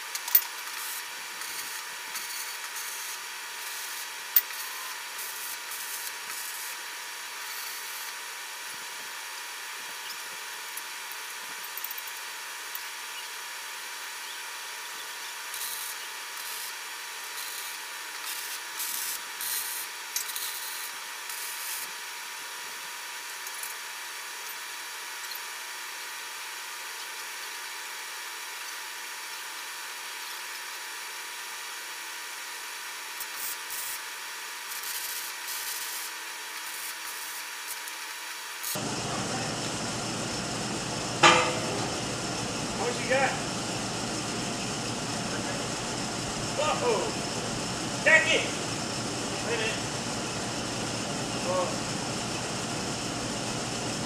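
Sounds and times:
welding arc crackle: 0:00.0 - 0:22.0, 0:22.7 - 0:54.0
sharp metal knock: 0:41.2 - 0:41.9.

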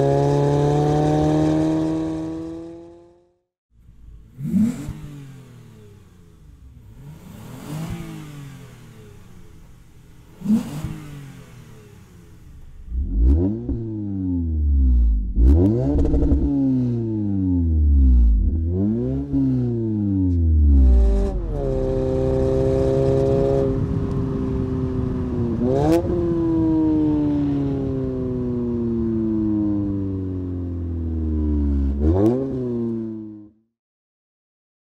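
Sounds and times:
car engine revving: 0:00.0 - 0:03.3, 0:03.9 - 0:30.1, 0:30.8 - 0:33.3.

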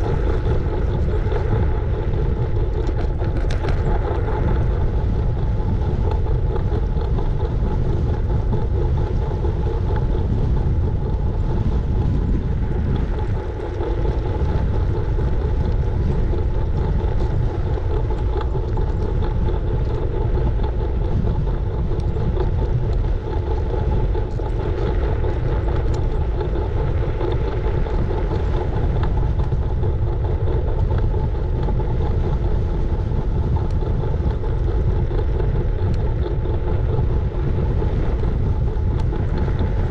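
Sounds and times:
wind on microphone: 0:00.0 - 0:39.9.

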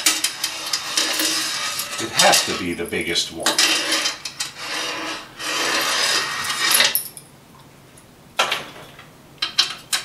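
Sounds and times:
metal wrenches jingling: 0:00.7 - 0:04.5.

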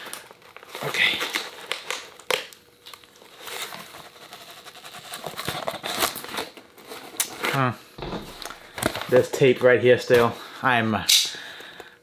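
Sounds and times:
paper and cardboard crinkling: 0:00.1 - 0:09.3.

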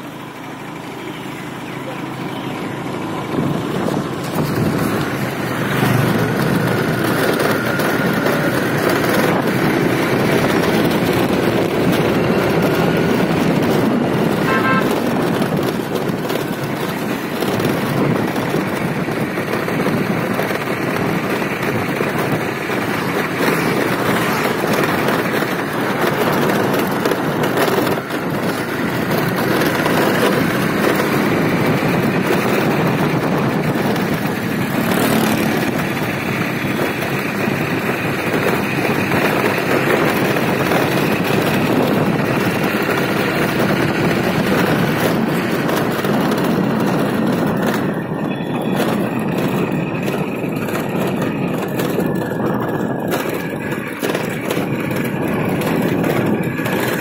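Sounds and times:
motorbike engine running: 0:00.0 - 0:57.0
wind and road noise: 0:00.0 - 0:57.0
short horn toot: 0:14.4 - 0:15.0.

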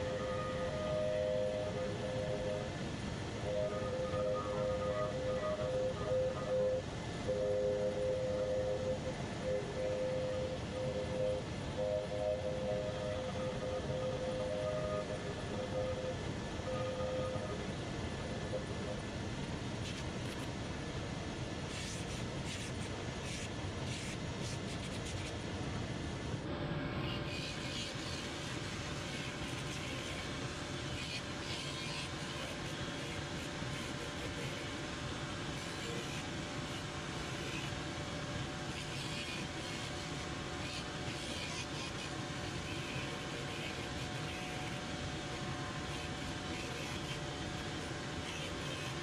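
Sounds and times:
machine motor with extraction hiss: 0:26.9 - 0:49.0.

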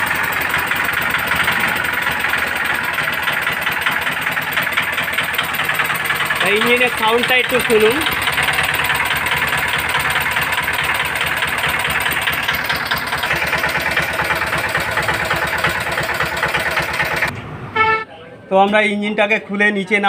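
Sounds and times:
diesel engine running: 0:00.0 - 0:17.4.

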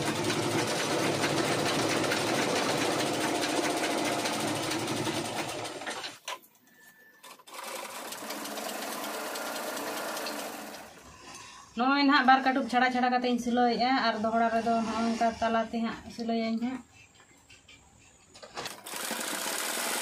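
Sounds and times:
sewing machines stitching: 0:00.0 - 0:06.4, 0:07.2 - 0:11.3, 0:18.5 - 0:20.0.

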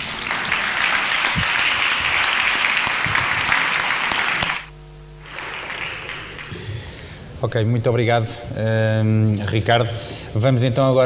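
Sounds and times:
audience applauding: 0:00.0 - 0:06.6
room noise: 0:00.0 - 0:11.0.

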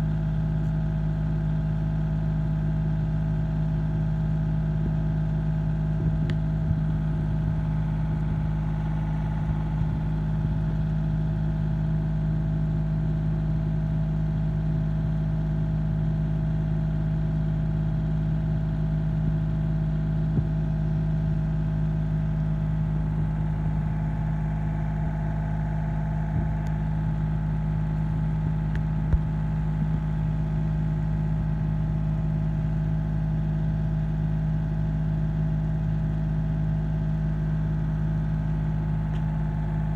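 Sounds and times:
engine idling: 0:00.0 - 0:39.9.

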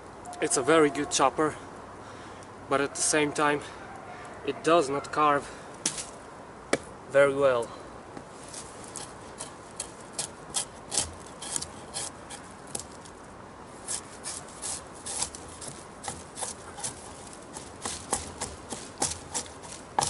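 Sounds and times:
dry leaves and twigs rustling: 0:08.2 - 0:20.0.

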